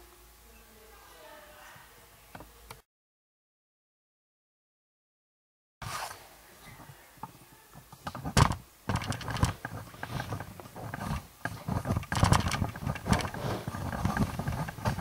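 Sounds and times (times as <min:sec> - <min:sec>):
rough growling: 0:12.0 - 0:15.0.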